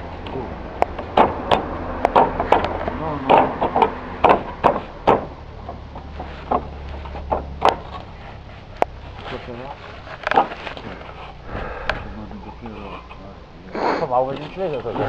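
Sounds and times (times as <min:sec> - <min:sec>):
roof tiles clacking: 0:00.0 - 0:11.2.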